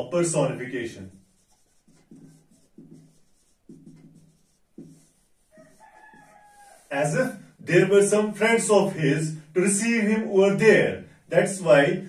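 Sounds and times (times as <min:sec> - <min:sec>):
marker squeaking on whiteboard: 0:00.0 - 0:07.4.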